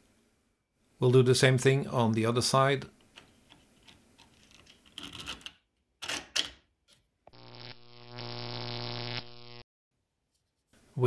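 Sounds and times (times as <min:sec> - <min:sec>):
plastic part clicking and scraping: 0:03.0 - 0:07.0.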